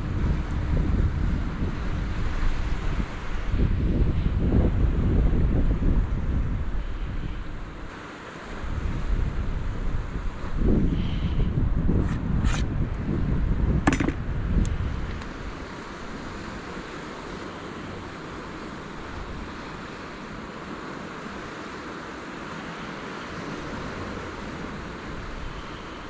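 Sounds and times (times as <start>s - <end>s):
wind rumbling on microphone: 0.0s - 21.8s, 22.5s - 26.0s
sea water hiss: 6.4s - 11.7s, 14.9s - 26.0s
short knocks: 13.8s - 14.2s.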